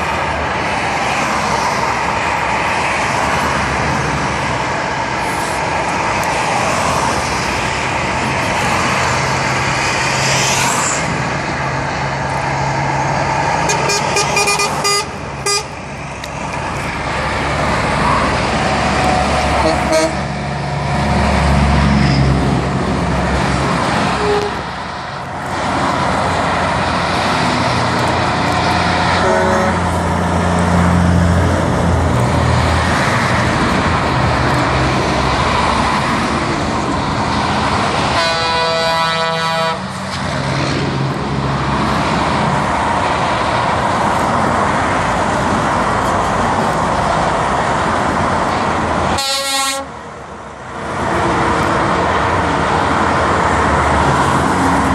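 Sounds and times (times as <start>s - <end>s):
trucks and cars passing: 0.0s - 54.9s
truck horn: 13.6s - 15.8s, 19.5s - 20.3s, 24.0s - 24.7s, 29.1s - 30.0s, 38.1s - 40.0s, 49.1s - 50.0s.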